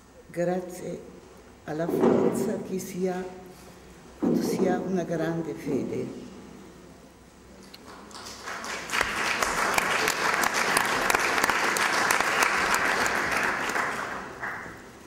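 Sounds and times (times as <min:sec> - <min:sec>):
audience applauding: 0:07.8 - 0:15.0.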